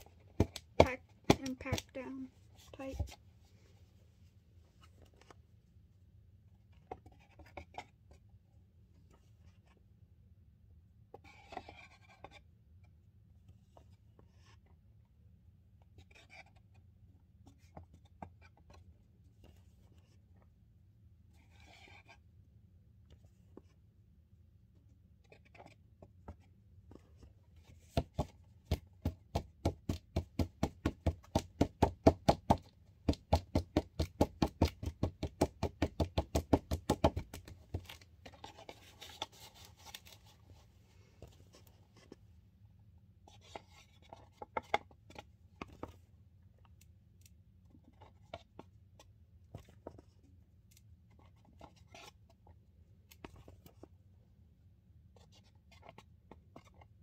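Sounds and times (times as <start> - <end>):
plastic spoon scraping a bowl: 38.2 - 40.6.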